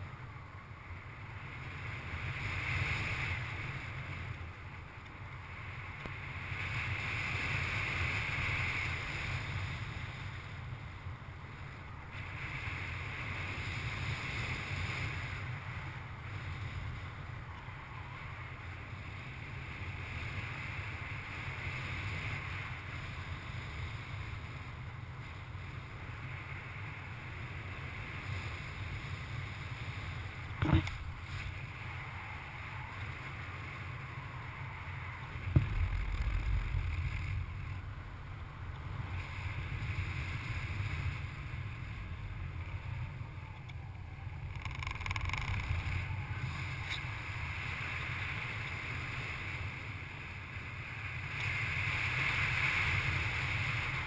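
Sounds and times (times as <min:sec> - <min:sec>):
wind rumble on microphone: 0:00.0 - 0:54.0
sharp knock: 0:35.5 - 0:37.7.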